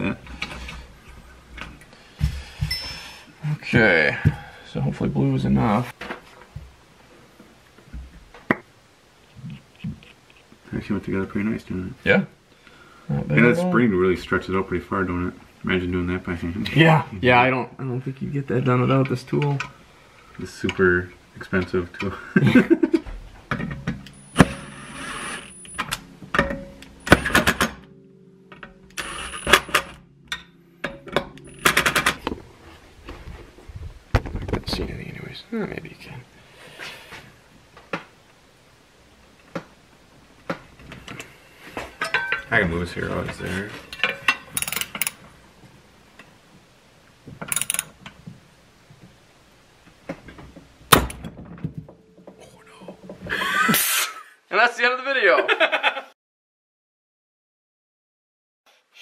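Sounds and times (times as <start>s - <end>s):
impact driver whining and rattling: 23.7s - 27.9s, 28.8s - 30.1s.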